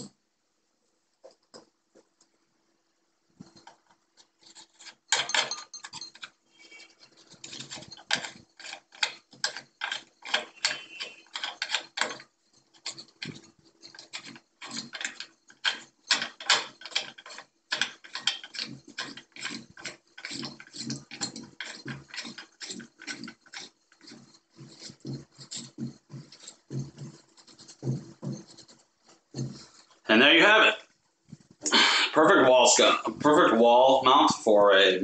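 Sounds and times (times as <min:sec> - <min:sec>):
lamp shade twisting clicks and scrapes: 0:03.4 - 0:30.0.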